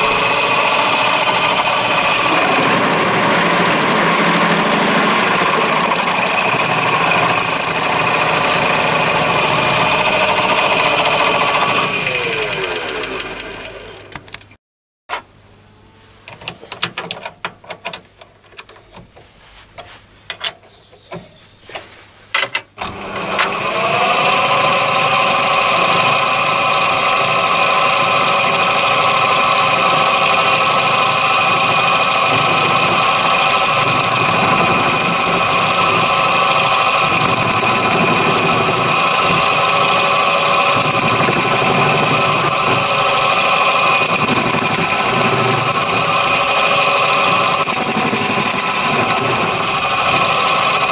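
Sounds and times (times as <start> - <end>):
lathe motor whine: 0.0 - 14.1, 22.8 - 50.9
metal clicks and knocks: 16.3 - 21.4, 22.3 - 22.7.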